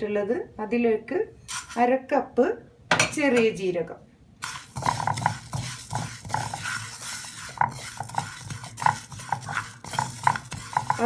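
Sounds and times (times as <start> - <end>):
wooden spatula scraping a pan: 1.5 - 1.9, 4.4 - 11.0
seeds rattling in a pan: 4.4 - 11.0.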